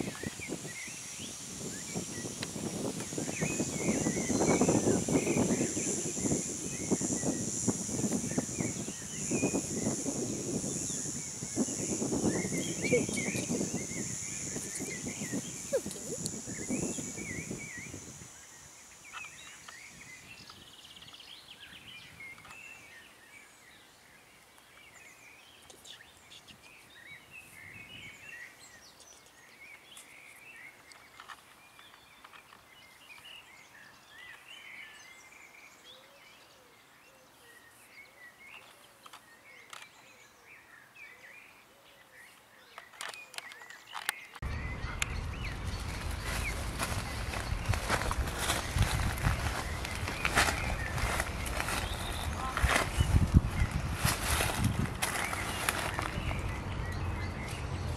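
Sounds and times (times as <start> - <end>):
steady high hiss: 0.0 - 21.9
small birds chirping: 0.0 - 57.9
low rustling noise: 44.4 - 57.9.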